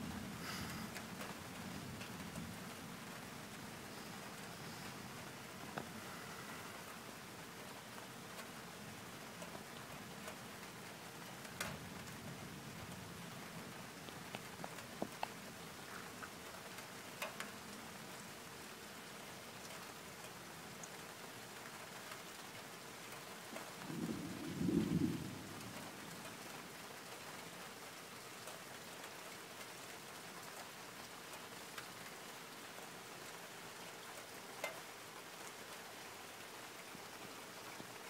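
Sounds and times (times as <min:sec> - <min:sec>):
steady rain: 0:00.0 - 0:38.0
low rumble of thunder: 0:23.8 - 0:26.5.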